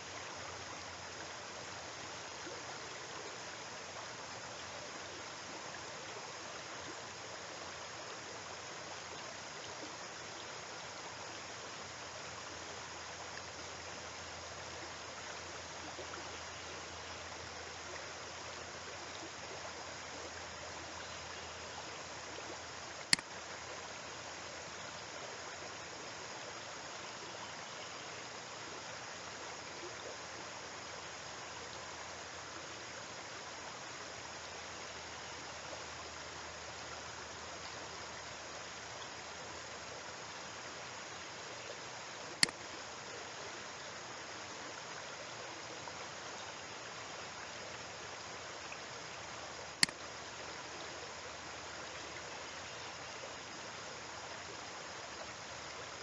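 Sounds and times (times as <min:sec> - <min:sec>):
steady background hiss: 0:00.0 - 0:56.0
sharp click: 0:23.1 - 0:23.3, 0:49.8 - 0:50.0.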